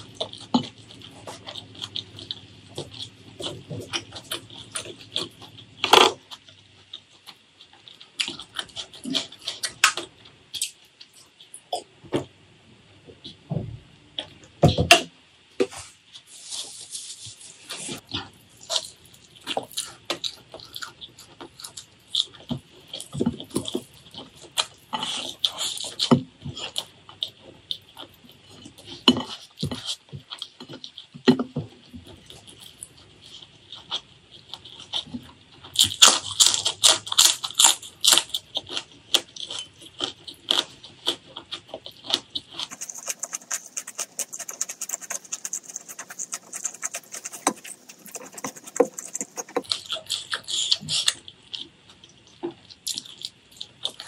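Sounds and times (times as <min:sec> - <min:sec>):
close chewing of food: 0:00.0 - 0:11.9, 0:17.6 - 0:54.0
fingers squishing rice: 0:35.8 - 0:51.2.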